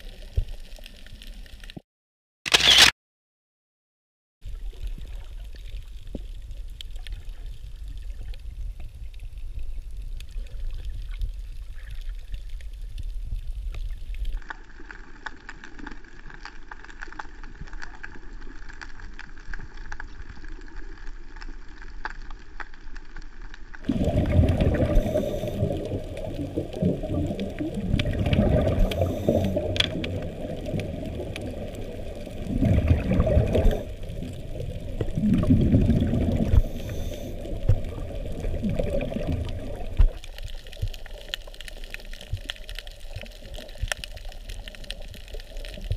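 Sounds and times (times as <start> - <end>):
water sloshing underwater: 4.4 - 45.9
bubbling surges: 23.8 - 41.0.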